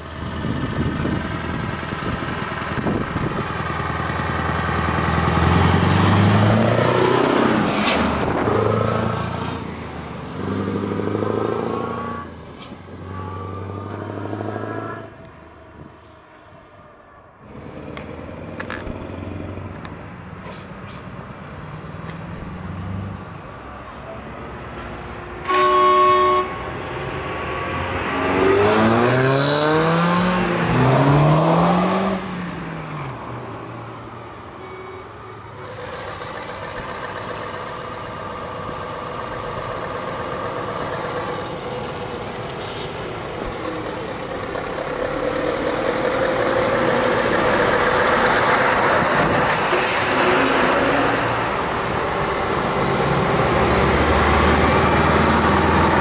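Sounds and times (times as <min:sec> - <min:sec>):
truck diesel engines revving: 0:00.0 - 0:56.0
truck horn: 0:11.7 - 0:12.4, 0:13.0 - 0:15.4, 0:25.4 - 0:27.8, 0:34.5 - 0:36.0.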